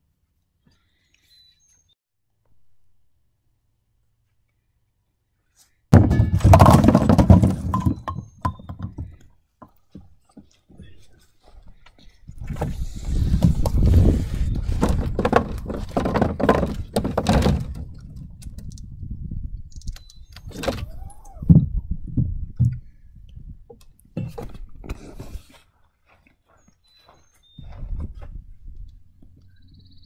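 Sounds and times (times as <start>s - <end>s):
bowling pins clattering: 6.0s - 9.1s.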